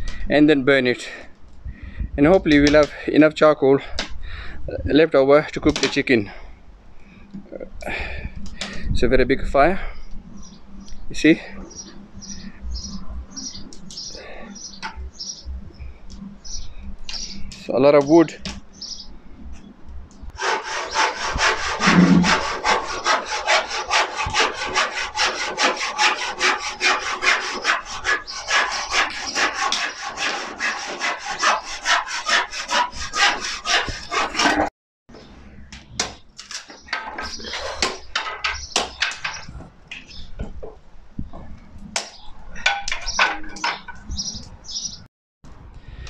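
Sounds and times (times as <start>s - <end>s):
handsaw cutting wood: 20.4s - 34.7s.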